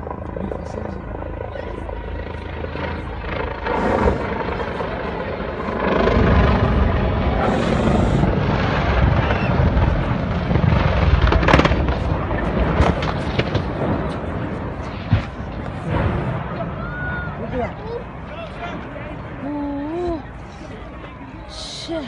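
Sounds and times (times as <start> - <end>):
helicopter rotor and engine rumbling: 0.0 - 22.0
sharp cracks: 8.9 - 16.3.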